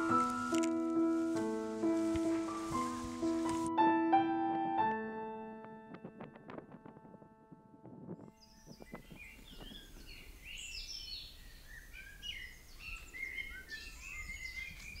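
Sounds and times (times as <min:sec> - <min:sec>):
piano notes: 0:00.0 - 0:09.8
songbirds singing: 0:08.3 - 0:15.0.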